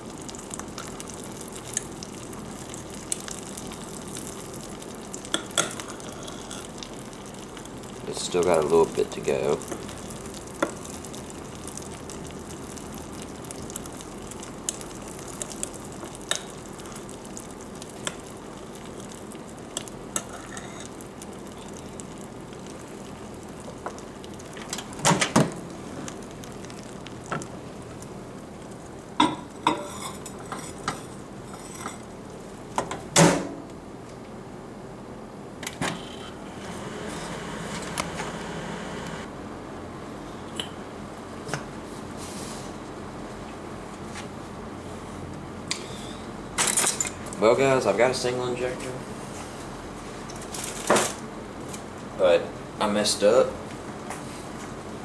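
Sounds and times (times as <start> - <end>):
microwave humming: 0.0 - 41.9.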